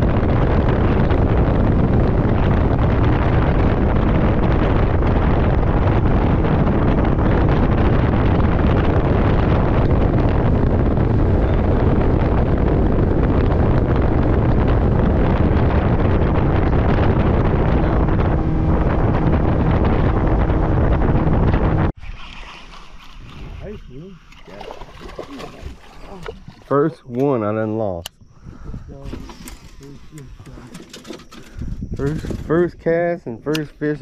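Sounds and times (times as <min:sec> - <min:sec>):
outboard motor running: 0:00.0 - 0:27.2
wind buffeting microphone: 0:00.0 - 0:34.0.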